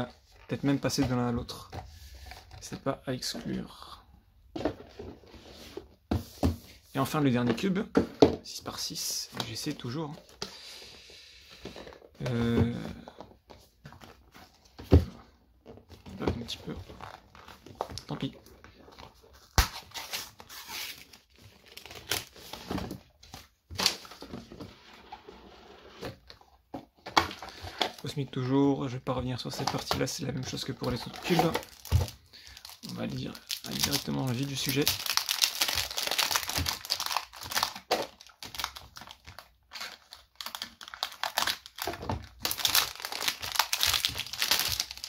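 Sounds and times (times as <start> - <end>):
plastic shrink wrap crinkling: 29.7 - 45.0.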